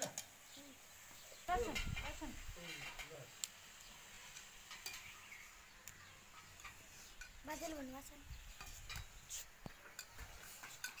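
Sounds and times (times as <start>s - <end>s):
metal spatula scraping a pan: 8.5s - 11.0s.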